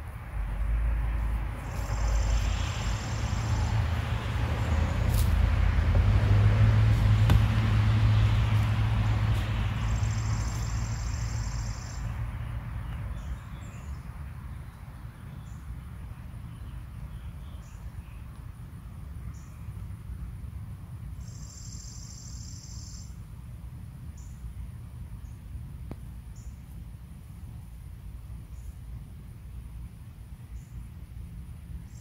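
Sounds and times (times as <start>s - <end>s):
vehicle passing: 0.0s - 14.5s
bird chirps: 21.2s - 23.2s.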